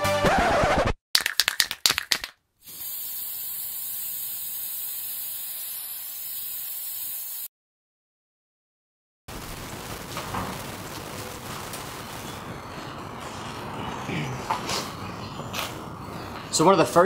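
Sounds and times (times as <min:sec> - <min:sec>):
spray paint hissing: 0:01.9 - 0:07.5.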